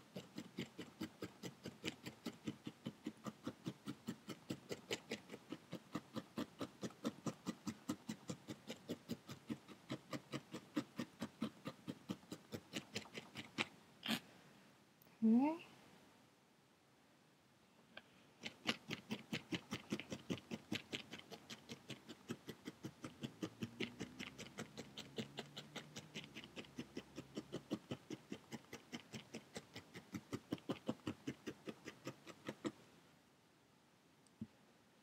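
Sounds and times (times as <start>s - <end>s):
felting needle poking wool: 0.0s - 14.2s, 18.0s - 32.9s.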